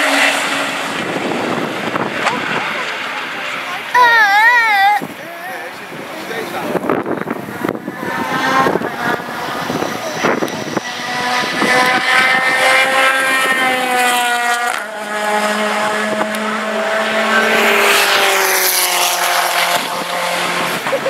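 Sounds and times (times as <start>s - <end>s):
race car engine at high revs passing: 0.0s - 21.0s.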